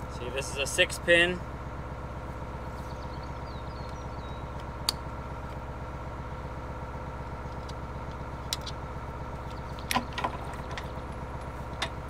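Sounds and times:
truck engine idling: 0.0 - 12.0.

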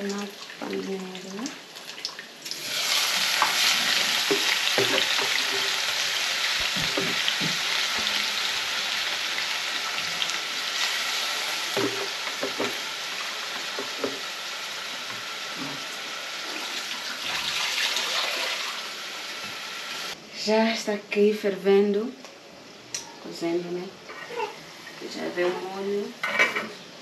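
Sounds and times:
greens sizzling in hot oil: 0.0 - 20.2.

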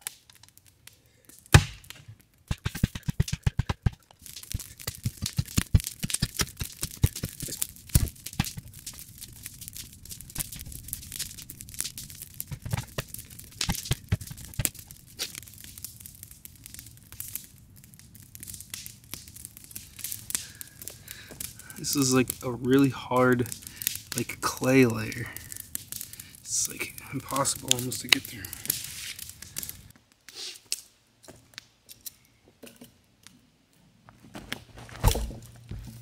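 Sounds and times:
post-hole digger striking clay: 1.5 - 7.4
gritty scraping of soil: 3.8 - 15.5, 19.6 - 30.7.

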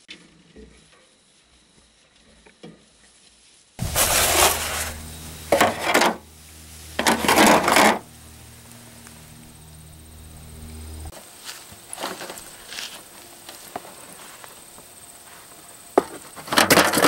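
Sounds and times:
aluminium foil crinkling: 3.8 - 5.2.

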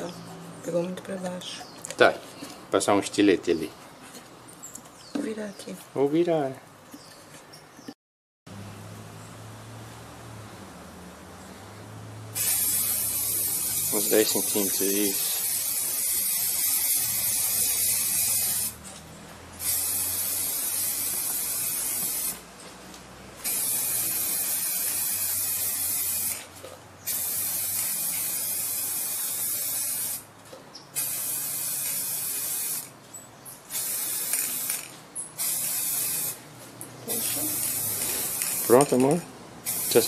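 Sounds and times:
spray can hissing: 12.4 - 18.8, 19.6 - 22.4, 23.4 - 30.3, 31.0 - 32.9, 33.7 - 36.4, 37.1 - 39.0, 39.6 - 40.0.

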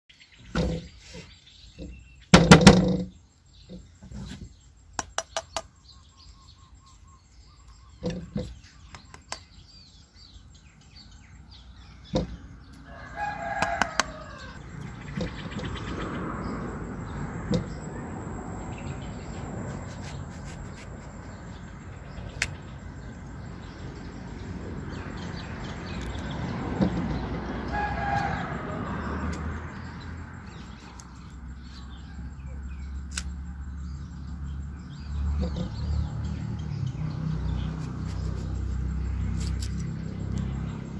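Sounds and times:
loud thump: 2.3 - 3.1
rooster crowing: 12.8 - 14.6, 27.5 - 29.6.

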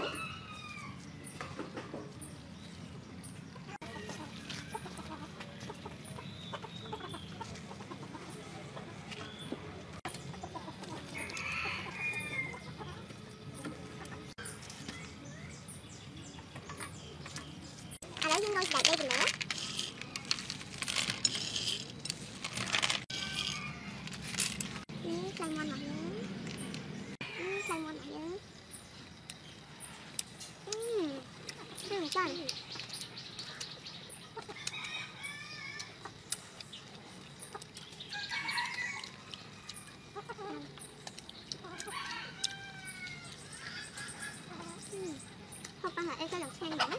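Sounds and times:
hens clucking: 3.6 - 14.4, 45.7 - 46.9.

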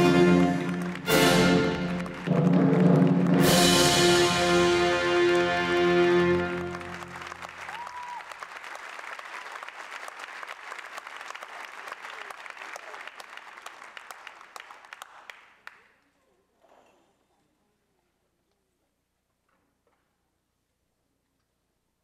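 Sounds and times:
audience applauding: 0.0 - 4.2, 5.1 - 16.0.

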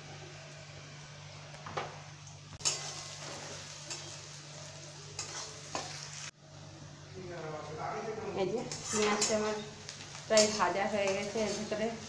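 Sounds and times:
onions sizzling in hot oil: 2.0 - 6.4, 8.3 - 12.0
spatula scraping metal pan: 2.6 - 4.2, 5.2 - 6.1, 8.7 - 9.7.

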